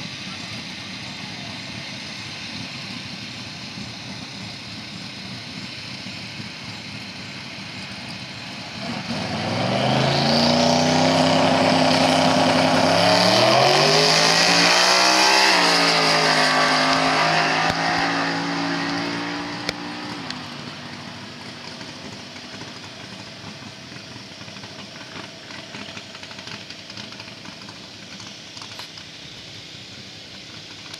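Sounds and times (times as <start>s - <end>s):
car engine at full throttle: 0.0s - 30.9s.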